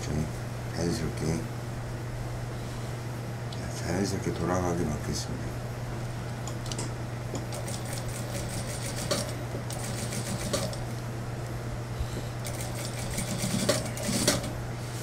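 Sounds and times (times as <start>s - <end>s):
sewing machine low hum: 7.5s - 11.0s, 11.8s - 15.0s.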